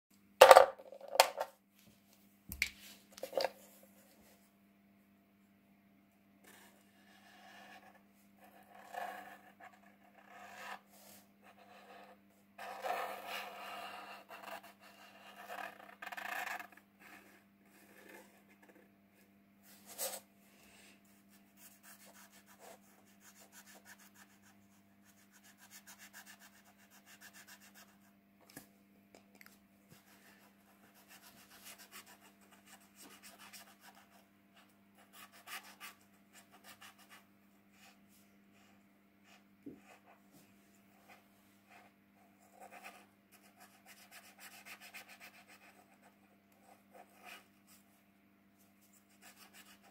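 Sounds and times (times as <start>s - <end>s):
marker scratching on paper: 30.0s - 34.2s, 35.1s - 37.2s, 41.7s - 47.7s.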